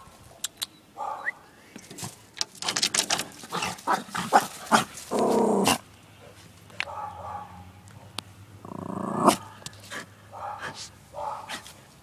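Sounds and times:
dog barking: 1.0s - 1.4s, 6.8s - 7.7s, 10.3s - 11.6s.

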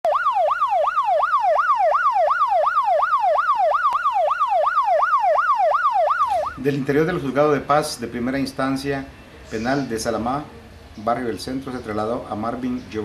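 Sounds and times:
emergency siren yelping: 0.0s - 7.2s.

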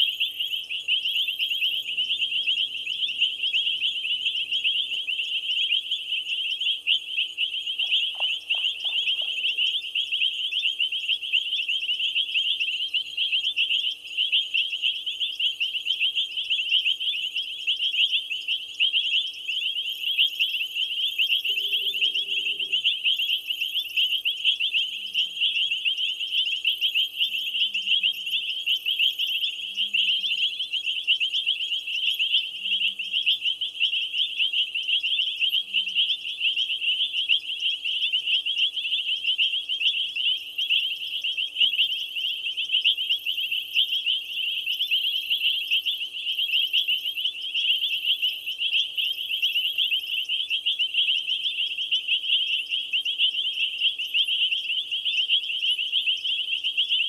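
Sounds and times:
night insects trilling: 0.0s - 57.0s
faint low falling calls: 21.4s - 22.9s.

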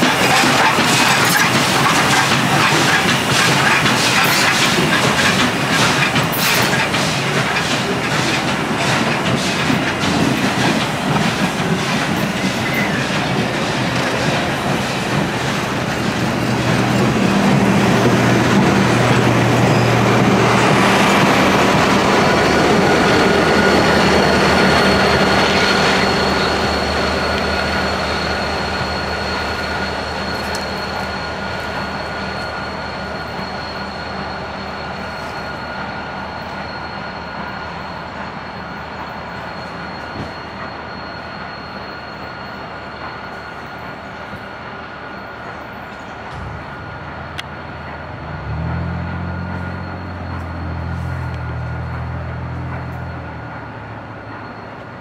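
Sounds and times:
train wheels clicking over rail joints: 0.0s - 36.9s, 45.3s - 55.0s
high-pitched wheel squeal: 11.0s - 55.0s.

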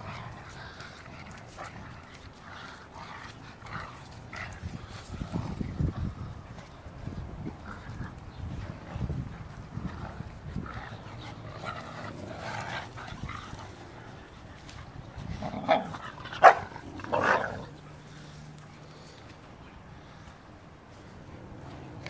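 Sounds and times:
dogs rumbling and scuffling: 0.0s - 22.0s
dog barking loudly: 15.7s - 17.6s.

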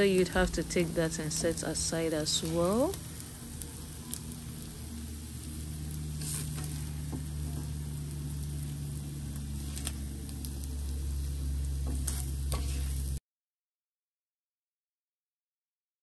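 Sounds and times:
eggs sizzling in frying pan: 0.0s - 13.2s
steady low hum: 0.0s - 13.2s
spatula scraping and clicking: 6.2s - 7.7s, 11.8s - 13.1s.

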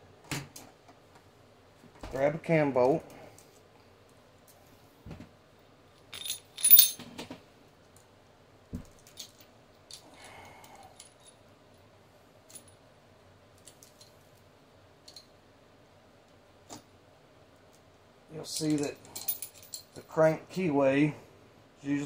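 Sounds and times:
metal chain rattling: 6.0s - 7.2s, 18.4s - 20.0s.

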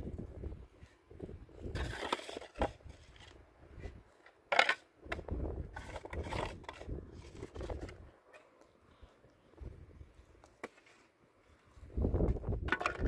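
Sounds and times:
shovel scraping stony soil: 1.6s - 4.0s, 5.6s - 8.5s.

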